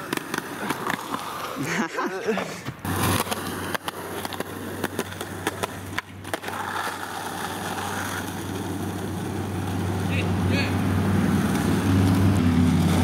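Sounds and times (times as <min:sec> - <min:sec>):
skateboard clacking and knocking: 0:00.0 - 0:01.6, 0:02.8 - 0:10.4
skateboard wheels rolling: 0:00.0 - 0:13.0.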